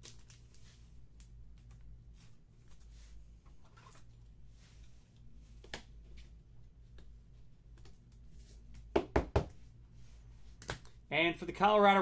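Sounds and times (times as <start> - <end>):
trading cards rustling and clicking: 0.0 - 1.9
steady low hum: 0.0 - 12.0.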